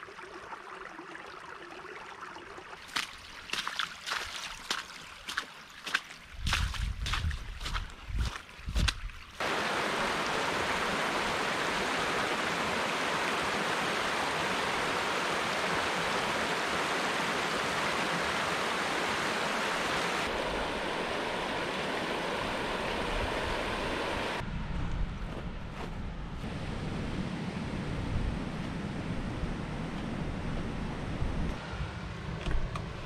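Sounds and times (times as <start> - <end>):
stream rushing over stones: 2.8 - 24.4.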